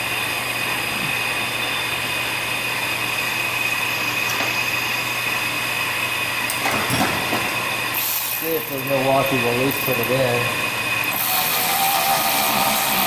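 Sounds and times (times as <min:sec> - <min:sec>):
machine drone with hum and whine: 0:00.0 - 0:13.0.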